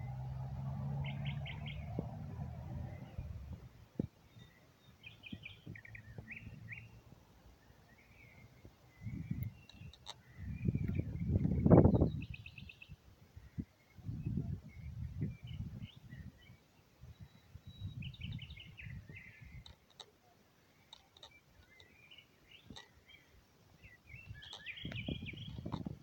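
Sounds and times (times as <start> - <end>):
low rumbling on microphone: 0.0 - 4.4, 10.2 - 12.6, 24.1 - 26.0
small birds chirping: 0.0 - 26.0.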